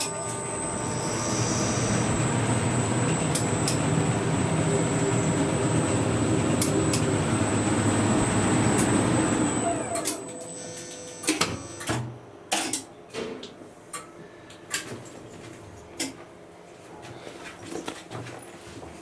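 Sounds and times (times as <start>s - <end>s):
faint hum: 0.0s - 11.8s.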